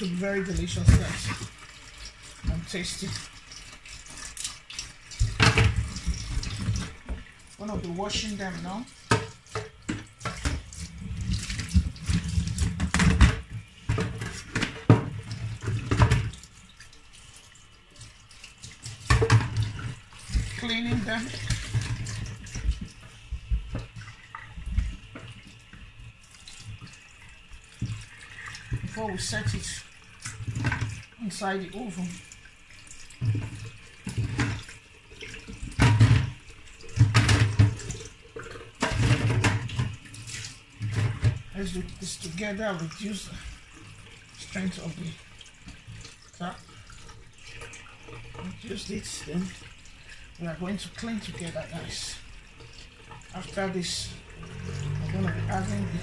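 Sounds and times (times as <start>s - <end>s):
tap water splashing in sink: 0.0s - 56.0s.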